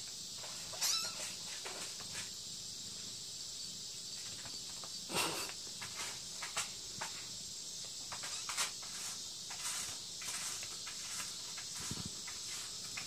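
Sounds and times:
steady high hiss: 0.0s - 13.0s
kittens scuffling on carpet: 8.1s - 13.0s.

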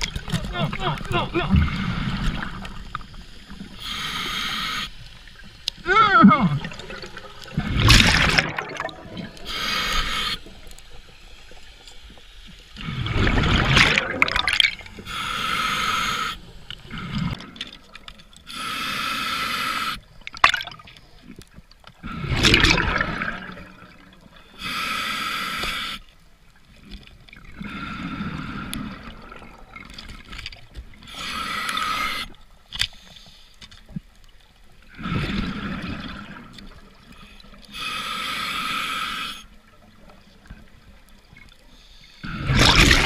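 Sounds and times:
regulator hissing inhalations: 3.7s - 5.5s, 9.4s - 11.1s, 14.9s - 16.7s, 18.4s - 20.1s, 24.5s - 26.1s, 31.0s - 33.6s, 37.1s - 39.6s
exhaled bubbles gushing: 5.8s - 10.7s, 12.8s - 15.1s, 20.2s - 20.9s, 22.0s - 24.3s, 27.3s - 30.2s, 34.9s - 37.0s, 42.2s - 43.0s.

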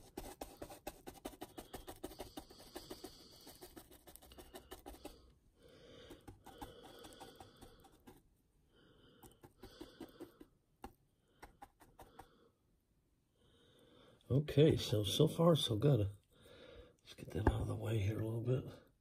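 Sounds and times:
paintbrush scraping paste: 0.0s - 8.4s, 9.1s - 12.4s.

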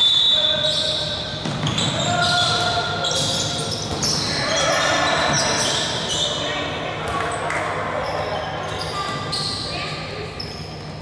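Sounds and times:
referee's whistle: 0.0s - 6.3s
sneaker squeaks on wooden floor: 0.0s - 6.5s, 8.0s - 11.0s
players shouting: 4.1s - 6.3s.

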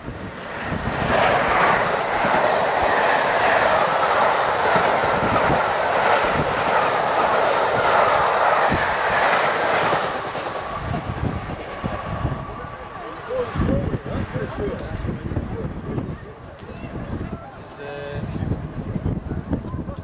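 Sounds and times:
train rushing past: 0.0s - 15.1s
wheels clicking on rails: 0.4s - 11.9s.

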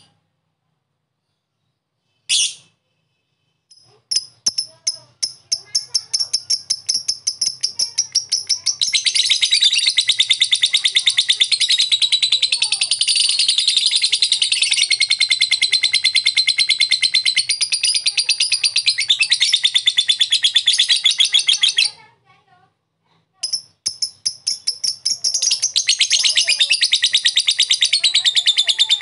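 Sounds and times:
lovebird high-pitched trilling chatter: 2.3s - 2.7s, 3.7s - 22.1s, 23.4s - 29.0s
lovebird clicking chirps: 3.7s - 11.9s, 23.4s - 28.5s.

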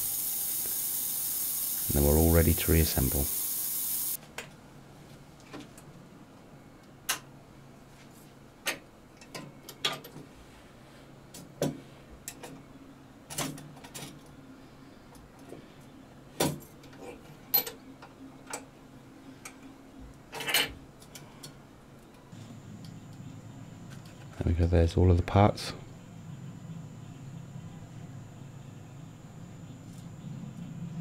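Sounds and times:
faint low hum: 21.0s - 31.0s.

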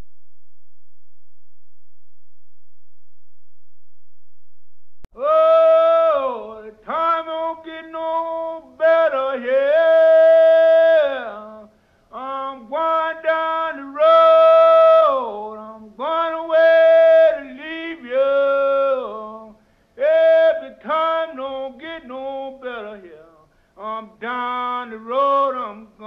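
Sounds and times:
man singing unaccompanied: 5.2s - 26.0s.

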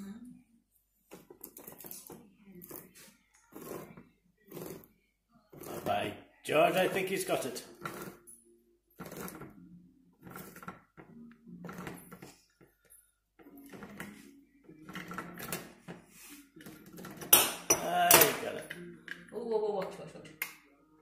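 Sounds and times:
tin opener clicking and scraping: 1.1s - 4.9s, 5.5s - 8.2s, 9.0s - 9.6s, 10.2s - 12.4s, 13.5s - 14.2s, 14.8s - 16.0s, 16.6s - 19.2s.

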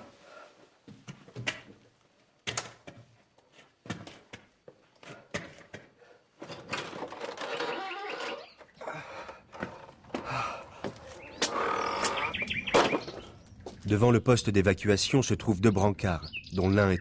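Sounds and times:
birds chirping: 7.4s - 17.0s
footsteps: 9.5s - 12.1s.

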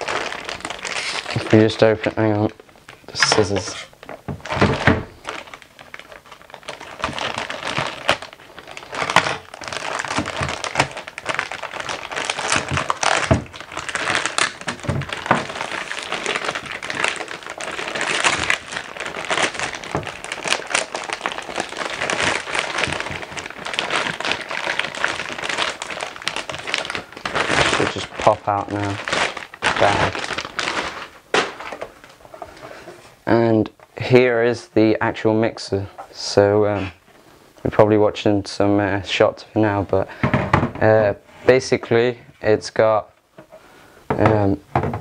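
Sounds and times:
plastic bag crinkling: 0.0s - 32.9s.

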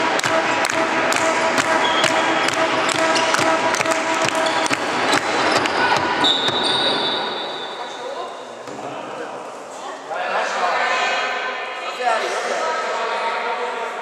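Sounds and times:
high steady tone: 0.0s - 7.8s
ball knocks in sports hall: 1.2s - 7.1s.

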